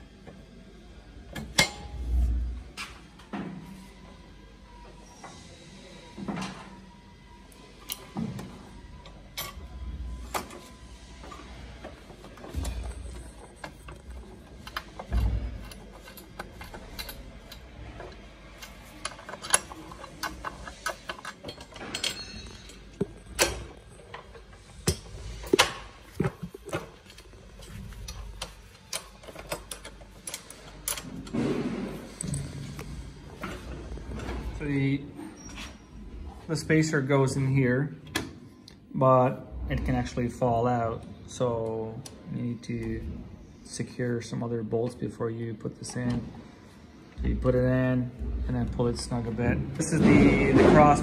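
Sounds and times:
wrench and bolts clinking on metal: 12.6s - 25.8s.

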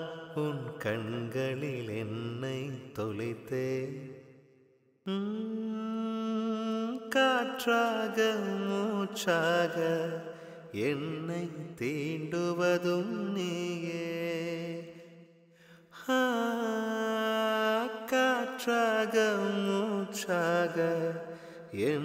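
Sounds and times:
person singing long notes: 5.1s - 8.6s.

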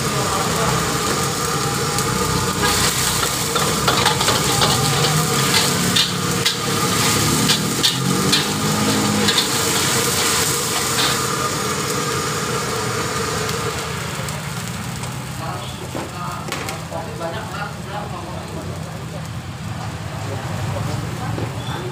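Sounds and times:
oil and sauce sizzling: 0.0s - 21.9s
metal spatula scraping a wok: 2.5s - 11.3s.

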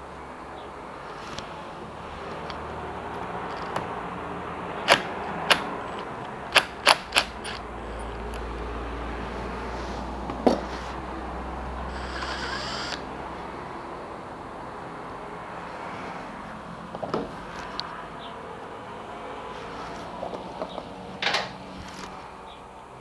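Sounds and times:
impact driver whirring: 6.6s - 7.7s, 11.9s - 13.0s.

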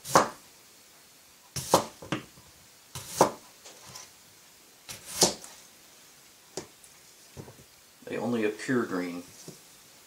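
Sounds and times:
knife slicing potato on board: 0.0s - 0.4s, 1.5s - 2.3s, 2.9s - 4.1s, 4.9s - 5.6s.

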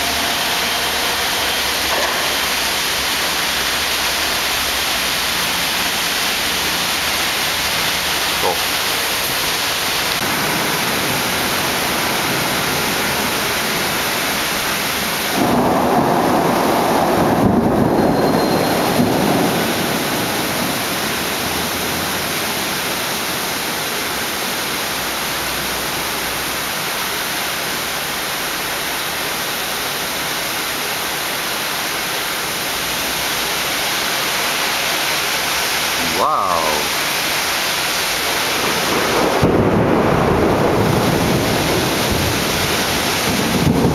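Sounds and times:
rain hissing: 0.0s - 43.9s
thunder rumble: 10.1s - 14.0s, 15.2s - 21.9s, 38.4s - 43.9s.

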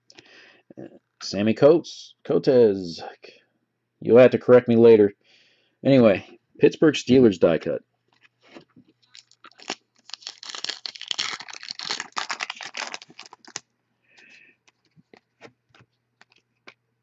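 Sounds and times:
foil wrapper tearing and crinkling: 9.0s - 13.6s.

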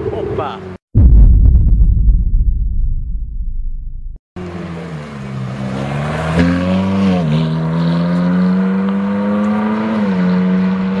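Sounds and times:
car engine accelerating hard: 4.4s - 11.0s.

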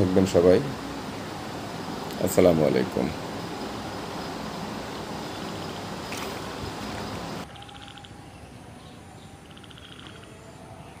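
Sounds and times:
rough outdoor noise: 0.0s - 11.0s
animals calling with pulsed trills: 3.2s - 11.0s.

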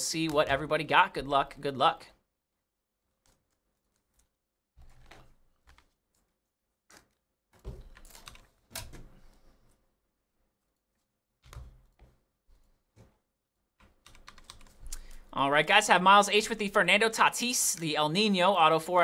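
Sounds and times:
faint keyboard typing: 13.8s - 15.3s.

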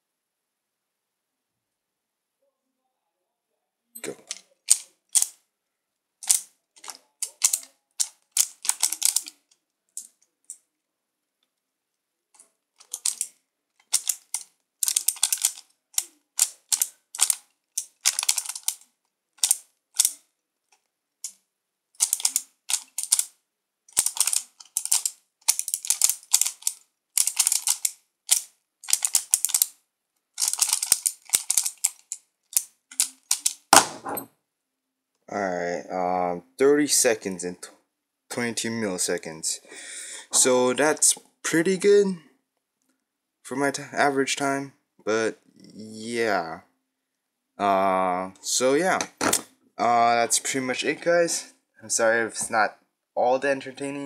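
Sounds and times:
plastic puzzle pieces clicking: 4.2s - 5.4s, 6.2s - 10.7s, 12.8s - 21.4s, 22.0s - 33.7s.

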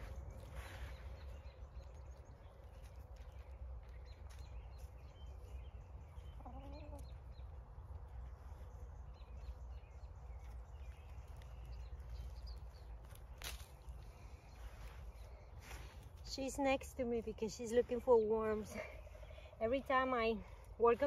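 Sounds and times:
hen clucking: 6.2s - 7.5s
hands scraping soil: 10.7s - 18.8s.

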